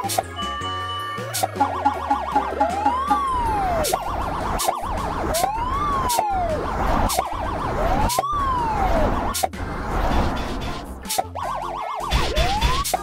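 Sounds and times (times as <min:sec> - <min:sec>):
police siren wailing and yelping: 0:00.4 - 0:09.5, 0:11.1 - 0:13.0.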